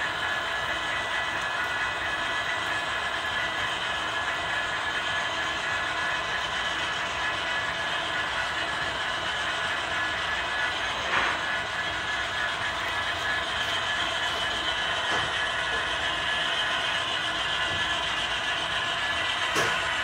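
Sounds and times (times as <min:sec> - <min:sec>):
model train rolling: 0:00.0 - 0:20.0.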